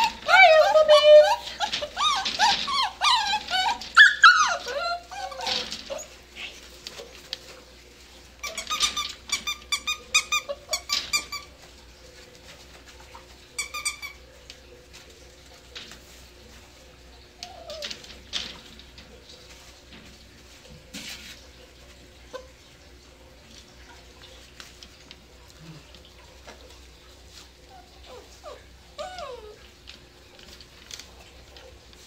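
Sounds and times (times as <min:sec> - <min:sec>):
puppies yipping: 0:00.0 - 0:06.7, 0:08.4 - 0:11.7, 0:13.1 - 0:14.2, 0:27.7 - 0:29.7
puppies whining: 0:00.0 - 0:07.6, 0:08.4 - 0:11.8, 0:13.1 - 0:14.4, 0:17.2 - 0:18.7, 0:27.6 - 0:31.2.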